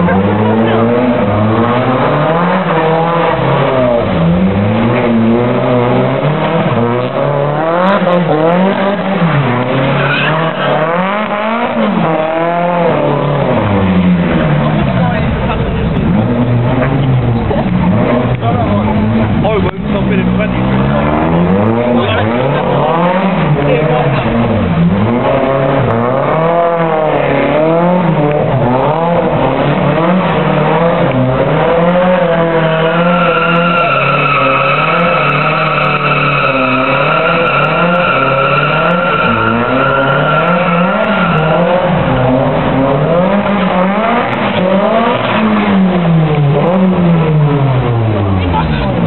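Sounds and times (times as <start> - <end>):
car engine revving: 0.0 - 49.0
tyre squeal: 32.4 - 42.1.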